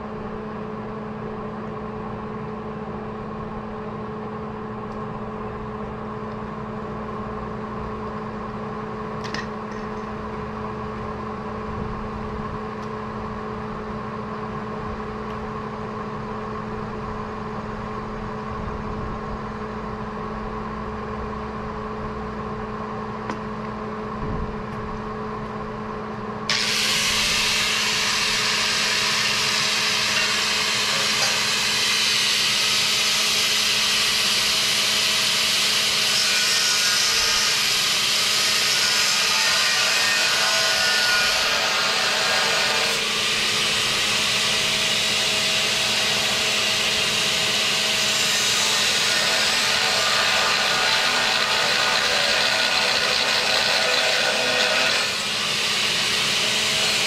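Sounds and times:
steady machine hum: 0.0s - 57.0s
angle grinder grinding steel: 26.5s - 33.9s, 34.7s - 57.0s.

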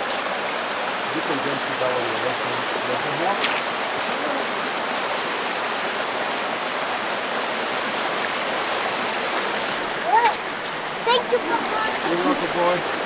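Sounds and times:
creek water rushing: 0.0s - 13.0s.

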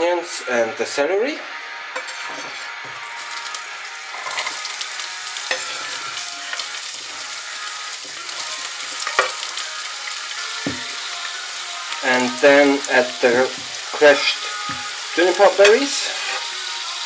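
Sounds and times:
vegetables sizzling in oil: 1.7s - 17.0s
knife scraping chopping board: 2.0s - 2.7s.

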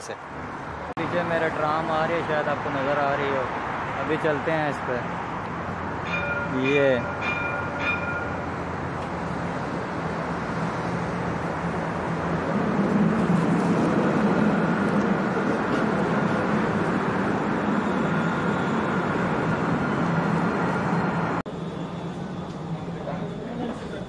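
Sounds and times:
road traffic: 0.0s - 24.0s
tram rolling rumble: 5.3s - 24.0s.

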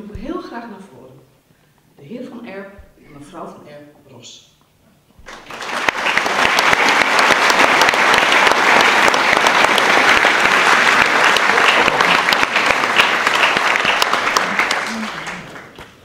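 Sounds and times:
audience applauding: 5.2s - 16.0s.

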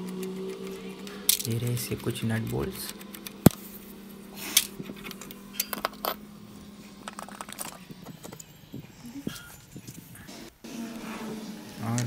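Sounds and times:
loose nuts clinking: 0.0s - 3.6s, 4.5s - 6.3s, 6.9s - 10.0s.

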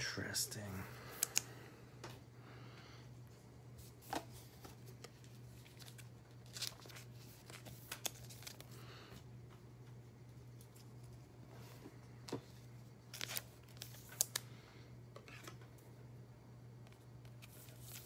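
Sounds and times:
low steady hum: 0.0s - 18.0s
cards rustling: 1.0s - 1.5s, 3.8s - 9.3s, 12.4s - 14.5s, 17.3s - 18.0s.

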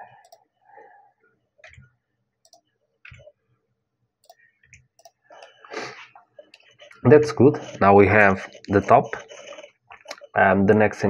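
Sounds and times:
mouse and keyboard clicks: 2.5s - 3.3s, 4.2s - 5.6s, 8.5s - 10.4s.

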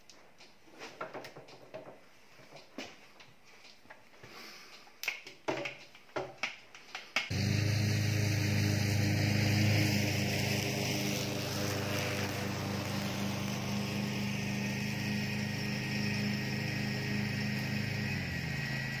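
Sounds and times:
riding mower engine running: 7.3s - 19.0s.

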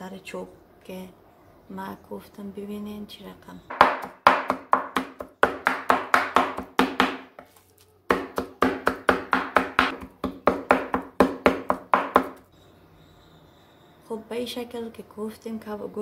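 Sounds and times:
knife chopping on wooden board: 3.7s - 12.4s.

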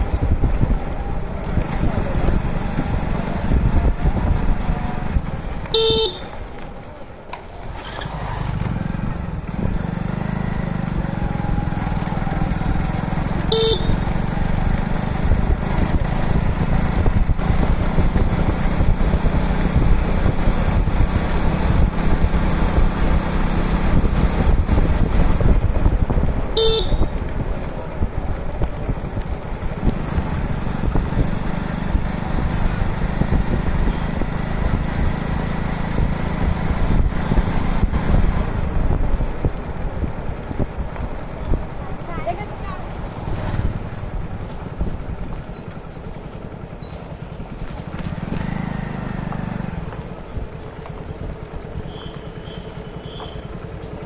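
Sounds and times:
motorcycle engine rumble: 0.0s - 54.0s
horn beeps: 5.7s - 6.3s, 13.5s - 14.0s, 26.6s - 27.1s, 51.8s - 53.6s.

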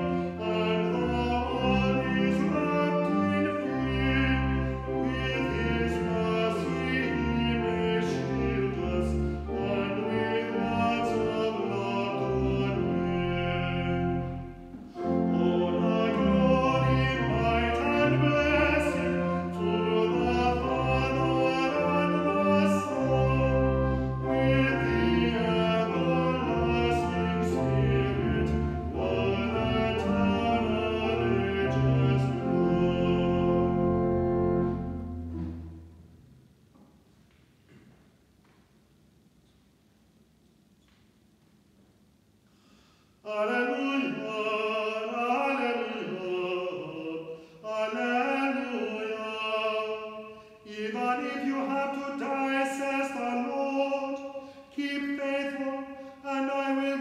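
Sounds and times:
man singing a hymn: 0.0s - 35.0s, 43.2s - 57.0s
organ accompaniment: 0.0s - 37.1s.

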